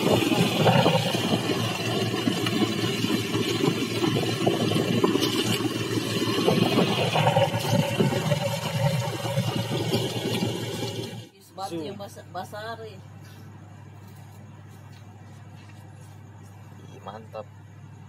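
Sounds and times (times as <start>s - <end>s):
boat engine running: 0.0s - 11.3s.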